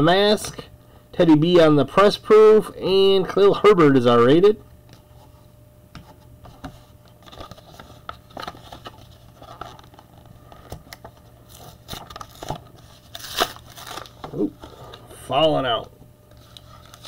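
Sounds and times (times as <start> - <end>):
foil wrapper crinkling: 7.2 - 15.0, 16.3 - 17.0.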